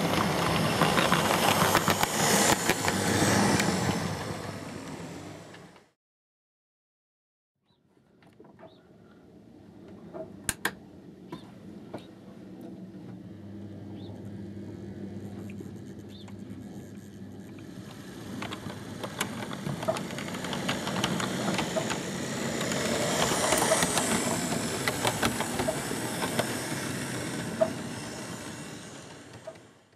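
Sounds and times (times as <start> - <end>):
wheels clicking over rail joints: 0.0 - 5.8, 15.8 - 29.8
model train motor hum: 0.0 - 5.9, 13.5 - 29.9.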